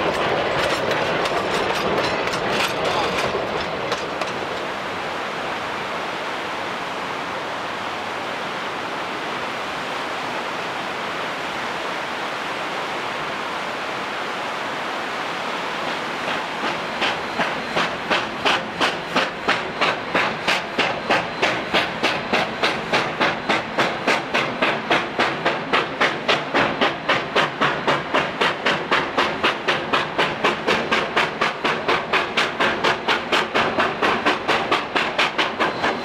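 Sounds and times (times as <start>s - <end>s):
steam locomotive chuffing: 0.0s - 4.8s, 15.8s - 36.0s.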